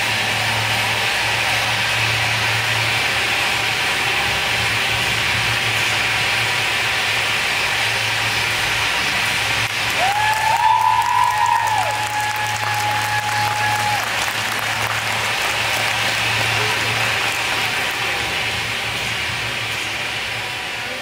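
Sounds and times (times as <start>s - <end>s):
low hum: 0.0s - 21.0s
steady hissing noise: 0.0s - 21.0s
audience applauding: 8.8s - 19.8s.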